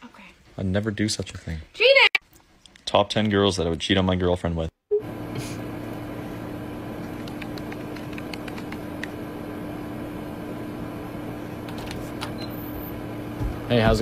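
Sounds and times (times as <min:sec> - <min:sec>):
steady electrical hum: 0:05.0 - 0:14.0.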